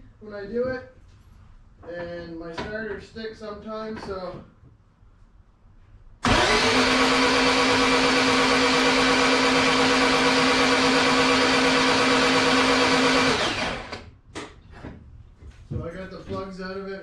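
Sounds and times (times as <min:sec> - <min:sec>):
starter motor cranking engine: 0:06.2 - 0:14.1.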